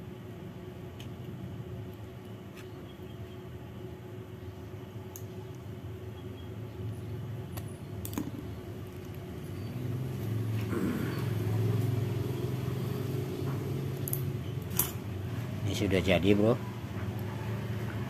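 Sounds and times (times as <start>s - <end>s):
vehicle engine hum: 5.4s - 18.0s.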